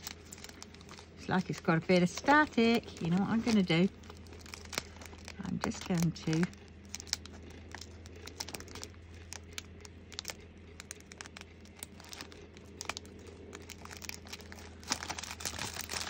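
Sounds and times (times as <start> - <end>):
plastic bag crinkling: 0.0 - 16.0
small clicks and rustles: 0.0 - 16.0.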